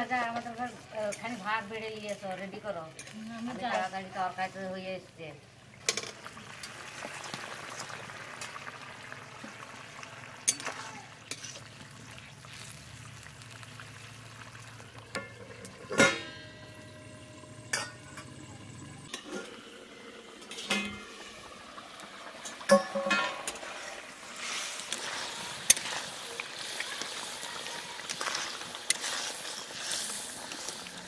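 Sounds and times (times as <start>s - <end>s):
ladle stirring and scraping: 0.0s - 4.6s, 10.4s - 19.5s, 22.3s - 31.0s
curry simmering and bubbling: 0.0s - 31.0s
metal lid clanking: 15.1s - 16.7s, 17.6s - 18.3s, 20.5s - 21.1s, 22.4s - 23.6s.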